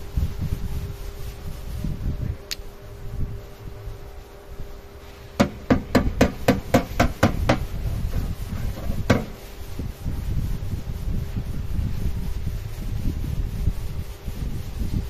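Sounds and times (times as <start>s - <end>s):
hammer blows on metal: 5.2s - 9.5s.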